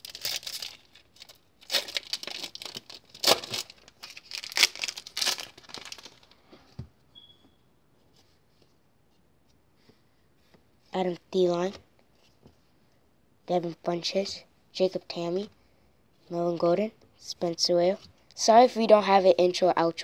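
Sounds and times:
plastic wrapper tearing and crinkling: 0.0s - 6.4s.

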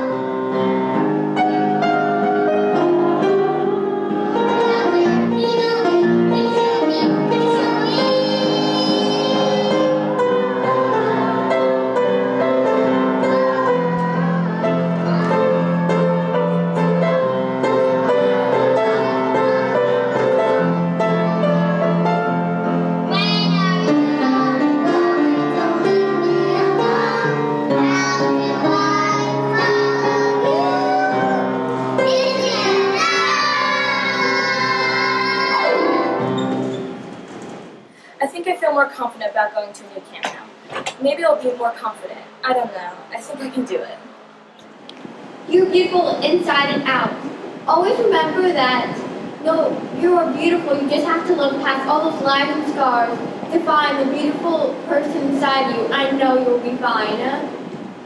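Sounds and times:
instrumental backing music: 0.0s - 37.9s
child singing: 2.7s - 15.9s, 18.0s - 21.7s, 23.1s - 31.4s, 32.0s - 36.2s.

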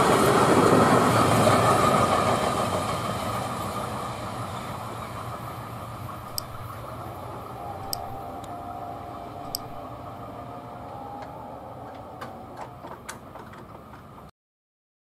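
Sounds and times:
freight train wheel rumble: 0.0s - 14.3s
faint clicks: 6.2s - 6.7s, 7.8s - 8.5s, 9.4s - 9.8s
sharp ticks: 6.2s - 6.7s, 7.8s - 8.5s, 9.5s - 9.8s.

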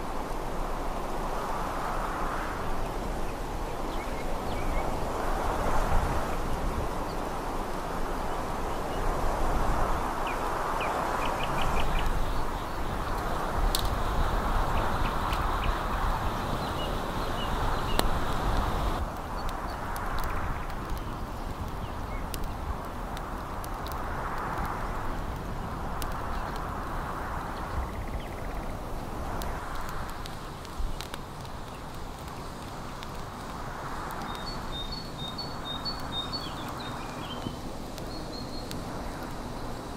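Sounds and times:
gusty wind rushing: 0.0s - 39.9s
bird calls: 10.2s - 19.8s, 34.2s - 39.8s.

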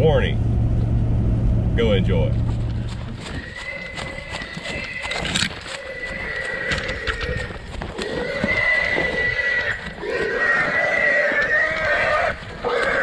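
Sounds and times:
hog squealing: 3.2s - 13.0s.

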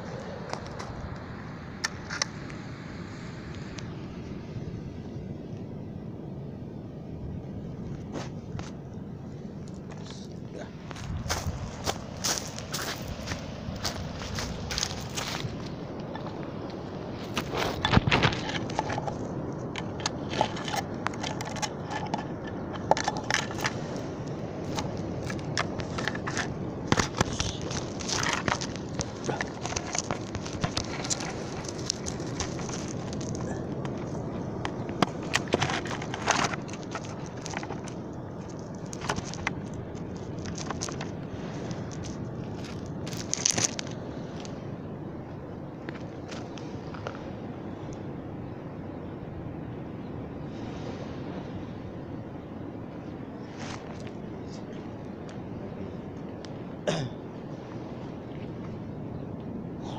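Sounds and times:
small waves rushing on a beach: 0.0s - 59.9s
sharp crackles and clicks: 17.2s - 44.6s.

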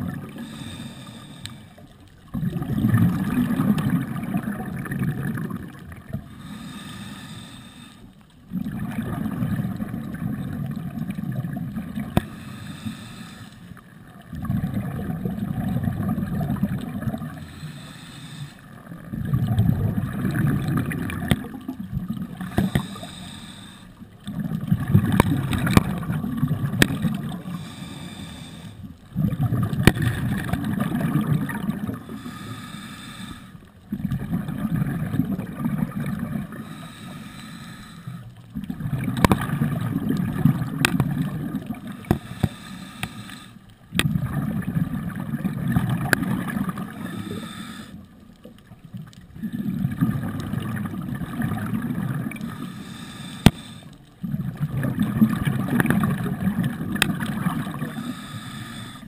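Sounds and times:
diver exhaling bubbles: 2.3s - 6.9s, 8.5s - 12.6s, 14.3s - 17.6s, 19.0s - 23.3s, 24.3s - 28.5s, 29.1s - 32.4s, 33.9s - 37.0s, 38.5s - 43.1s, 43.9s - 47.9s, 49.3s - 58.9s.

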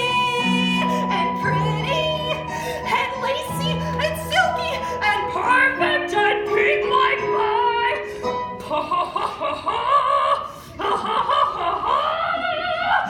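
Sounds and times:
musical accompaniment: 0.0s - 9.1s.

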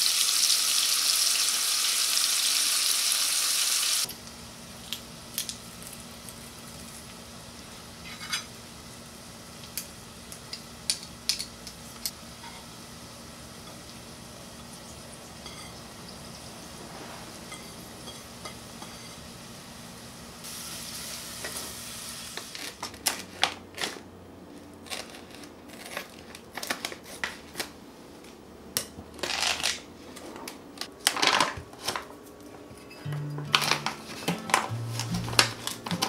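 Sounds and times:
onions sizzling in a pot: 0.0s - 22.8s.

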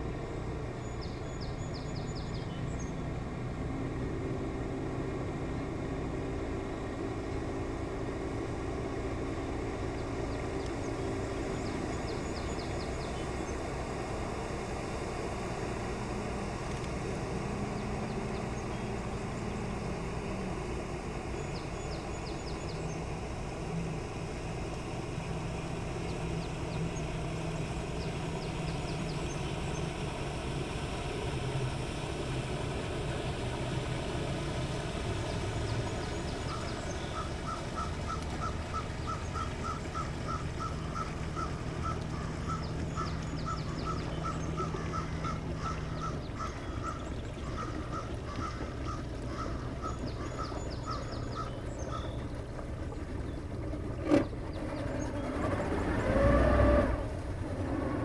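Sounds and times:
boat engine humming: 0.0s - 58.0s
small birds chirping: 0.8s - 3.1s, 9.8s - 13.7s, 16.6s - 23.4s, 24.0s - 30.2s, 34.0s - 55.8s.

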